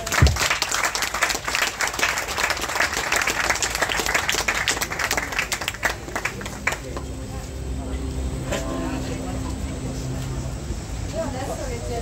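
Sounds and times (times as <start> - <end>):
crowd applauding: 0.0 - 7.4.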